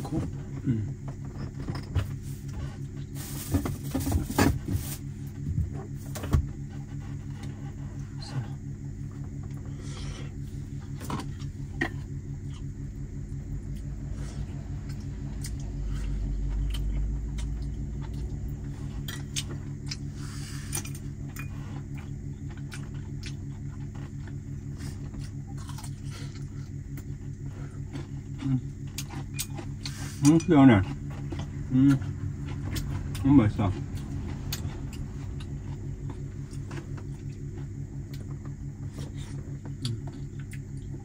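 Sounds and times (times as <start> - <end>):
low mechanical hum: 0.0 - 41.0
low rumble: 6.8 - 22.6, 30.8 - 41.0.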